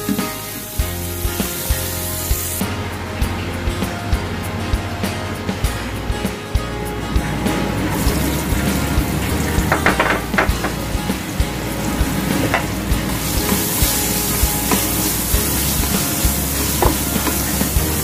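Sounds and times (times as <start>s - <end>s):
onions sizzling in hot oil: 0.4s - 2.6s, 11.7s - 18.0s
knocks: 9.0s - 11.4s.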